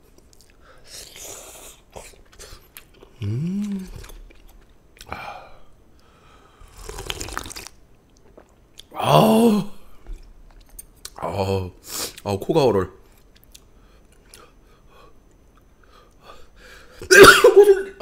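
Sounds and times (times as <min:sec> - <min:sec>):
chewing: 0:00.2 - 0:05.1
person humming: 0:03.1 - 0:04.1
slurping noodles: 0:06.6 - 0:07.8.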